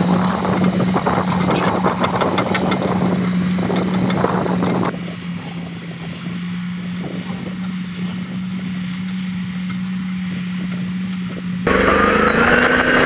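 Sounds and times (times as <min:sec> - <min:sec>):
tracks and blade clattering: 0:00.0 - 0:04.9
bulldozer diesel engine droning: 0:00.0 - 0:13.0.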